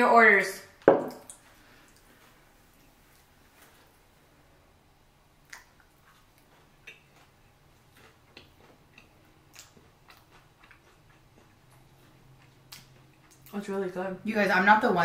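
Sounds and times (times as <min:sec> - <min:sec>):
wet mouth clicks of chewing: 0:05.4 - 0:07.4, 0:08.0 - 0:13.6.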